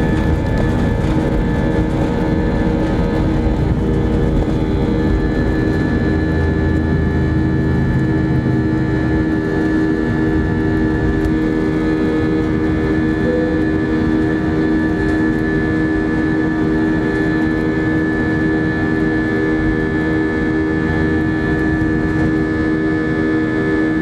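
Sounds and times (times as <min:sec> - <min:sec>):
low engine rumble: 0:00.0 - 0:17.7
jet engine whine: 0:00.0 - 0:24.0.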